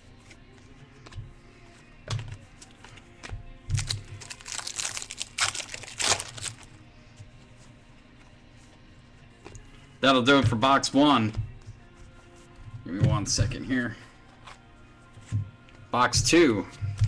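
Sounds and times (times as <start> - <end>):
cards rustling and sliding: 0.1 - 6.7.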